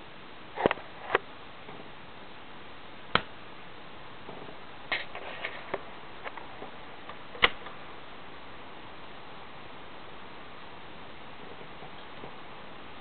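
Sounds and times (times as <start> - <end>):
vinyl crackles and pops: 0.0 - 2.3, 3.0 - 8.1, 10.4 - 13.0
vinyl record surface hiss: 0.0 - 13.0.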